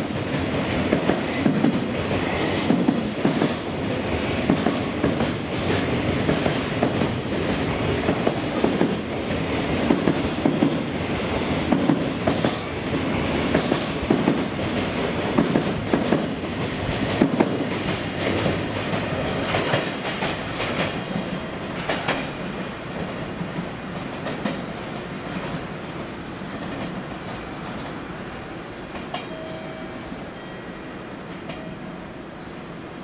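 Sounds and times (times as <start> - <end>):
train wheels clattering over rail joints: 4.3 - 9.1, 13.4 - 23.1.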